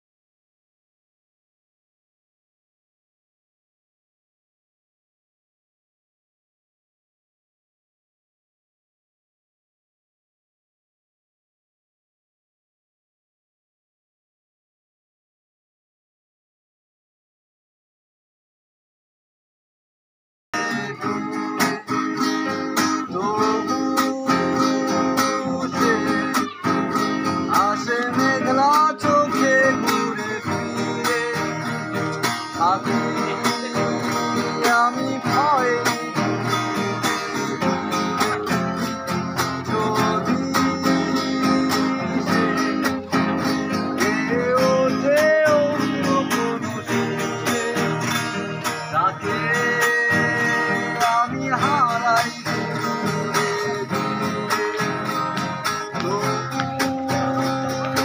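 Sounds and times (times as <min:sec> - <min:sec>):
acoustic guitars plucked and strummed: 0:20.6 - 0:58.0
man singing: 0:20.6 - 0:58.0.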